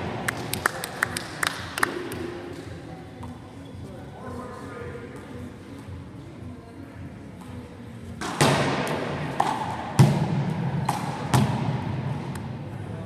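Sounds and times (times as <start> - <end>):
handball hitting wall and floor: 8.2 - 12.5.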